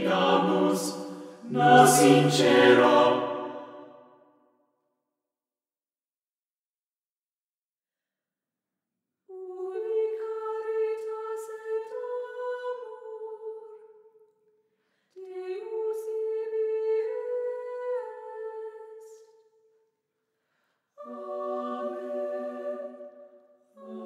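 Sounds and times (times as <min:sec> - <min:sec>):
a cappella voices singing softly: 0:00.0 - 0:04.0, 0:09.3 - 0:14.0, 0:15.1 - 0:19.4, 0:21.0 - 0:24.0.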